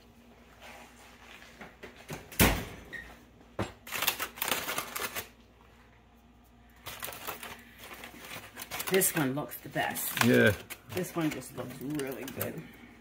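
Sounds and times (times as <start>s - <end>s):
aluminium foil crinkling: 3.8s - 12.8s.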